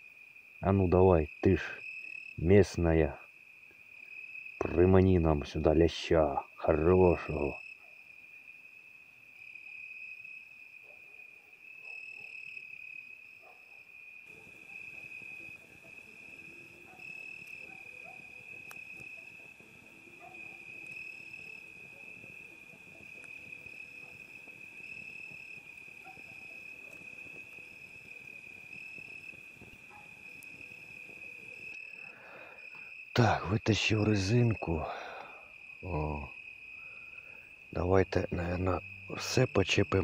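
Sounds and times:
cricket trilling: 0.0 - 40.0.

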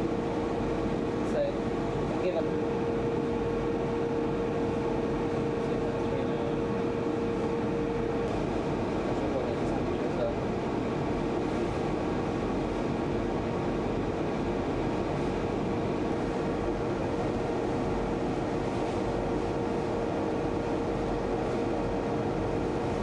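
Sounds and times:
steady machine hum: 0.0 - 23.0.

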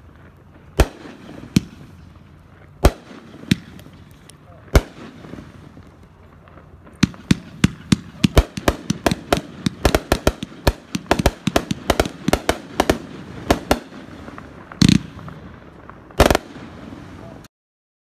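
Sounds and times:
heavy firework blasts: 0.0 - 17.5
firework cake bangs and pops: 2.8 - 4.0, 6.8 - 16.7.

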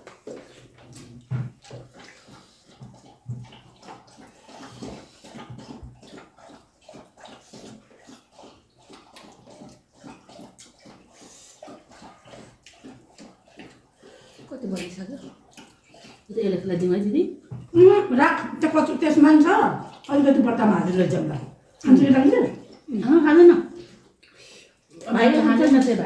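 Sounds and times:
people chewing and lip-smacking: 0.0 - 16.3, 19.8 - 20.5, 23.7 - 25.9.

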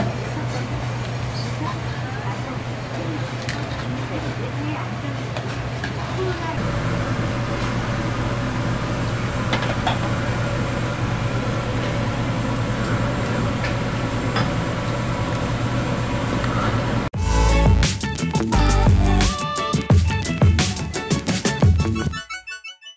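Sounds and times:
low hum of cooking stall: 0.0 - 17.1
music with a beat: 17.2 - 22.4.

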